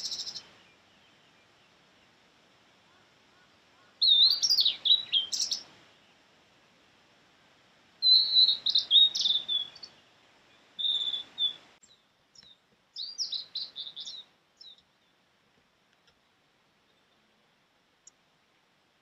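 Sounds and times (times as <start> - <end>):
bird singing high whistled notes: 0.0 - 1.2, 4.0 - 5.6, 8.0 - 10.0, 10.8 - 14.8.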